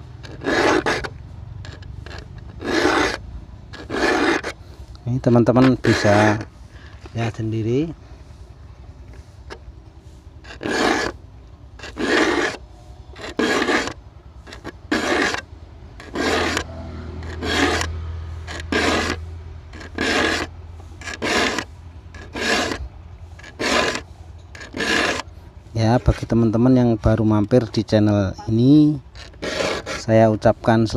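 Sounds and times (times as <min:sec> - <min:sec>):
file rasping on saw teeth: 0:00.2 - 0:04.6, 0:05.3 - 0:06.5, 0:10.4 - 0:11.2, 0:11.8 - 0:22.8, 0:23.4 - 0:26.5, 0:29.1 - 0:30.4.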